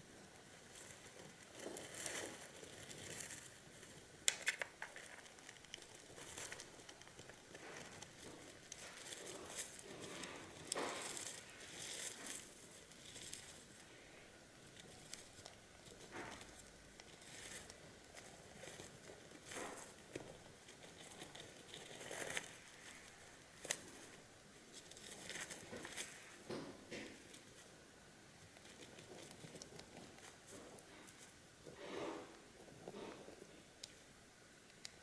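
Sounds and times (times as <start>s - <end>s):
wood shavings rustling: 0.6s - 27.7s.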